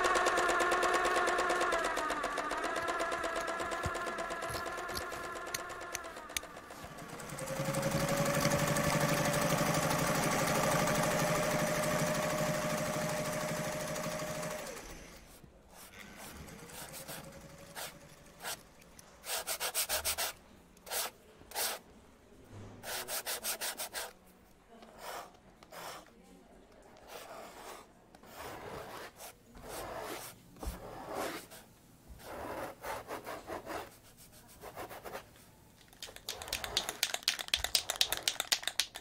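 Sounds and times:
small motorised tool whining: 0.0 - 9.9.

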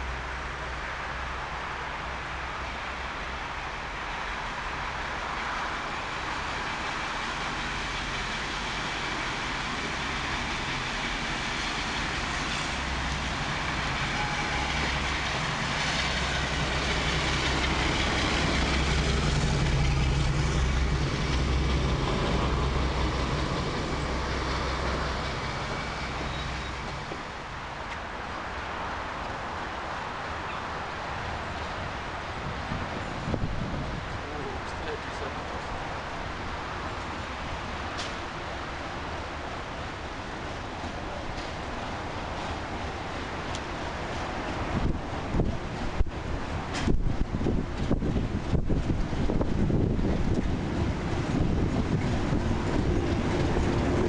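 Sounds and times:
diesel locomotive engine rumble: 0.0 - 54.0.

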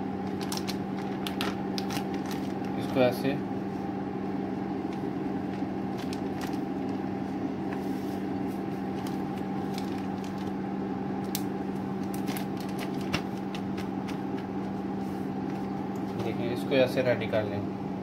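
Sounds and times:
steady low hum: 0.0 - 18.0
plastic bag crinkling: 0.2 - 3.0, 4.8 - 7.1, 8.8 - 10.6, 12.0 - 14.5.

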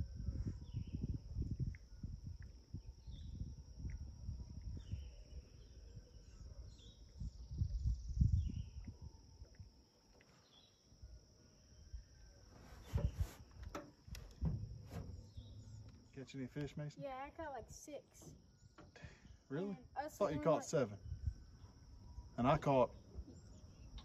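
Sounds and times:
insect drone: 0.0 - 24.0
small birds chirping: 0.0 - 24.0
sharp knocks: 13.7 - 15.3.

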